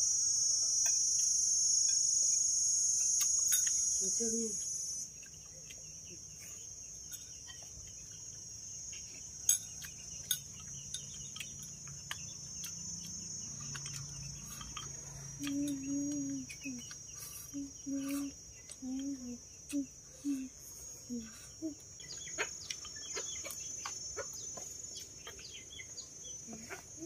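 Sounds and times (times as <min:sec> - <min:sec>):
insects chirring: 0:00.0 - 0:27.0
chopsticks clicking against bowls: 0:13.6 - 0:17.1.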